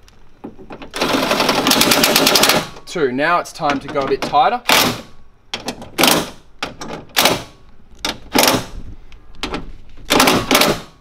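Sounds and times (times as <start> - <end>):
impact driver hammering: 10.1 - 11.0.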